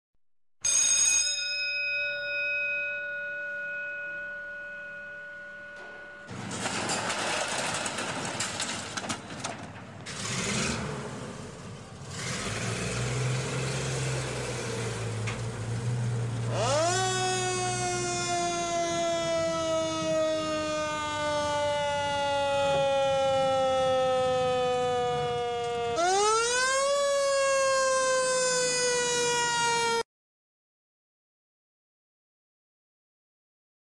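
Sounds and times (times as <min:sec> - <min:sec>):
bell ringing: 0:00.6 - 0:06.4
fire engine siren: 0:05.2 - 0:08.1, 0:12.1 - 0:30.1
fire engine engine running: 0:05.8 - 0:30.0.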